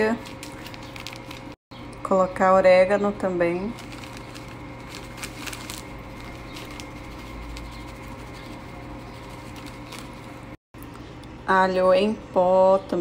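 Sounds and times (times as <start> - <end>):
low hum: 0.0 - 11.5
herbs ticking and rustling: 0.1 - 1.6, 3.7 - 10.6.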